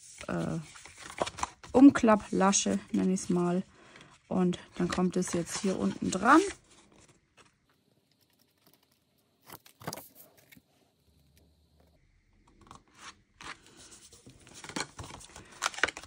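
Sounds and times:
cardstock scraping and rustling: 4.8s - 7.6s.

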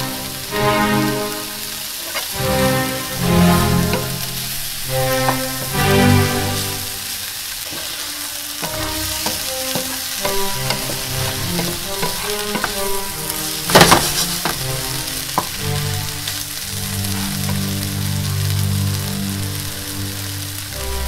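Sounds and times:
background music: 0.0s - 21.0s
vegetables sizzling in frying pan: 0.0s - 21.0s.

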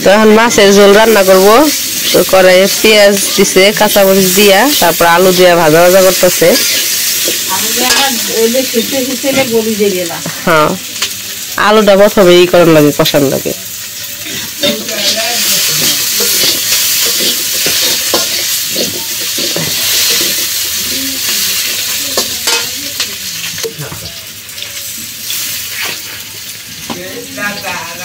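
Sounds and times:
vegetables sizzling in oil: 0.0s - 28.0s
metal spatula scraping a pan: 6.0s - 9.5s, 14.1s - 23.8s.

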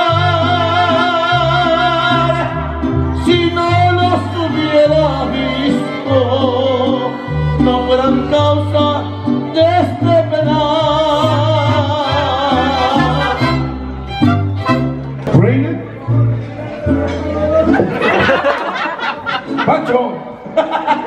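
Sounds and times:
man singing into a microphone: 0.0s - 13.7s
mariachi band playing: 0.0s - 21.0s.

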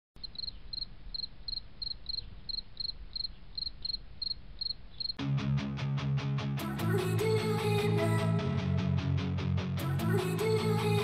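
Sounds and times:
cricket chirping: 0.2s - 5.2s.

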